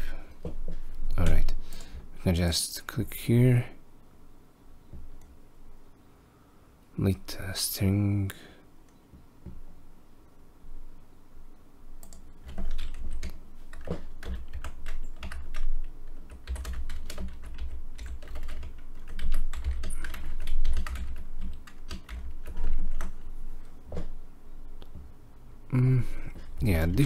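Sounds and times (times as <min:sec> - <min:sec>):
typing on computer keyboard: 0:12.0 - 0:23.2.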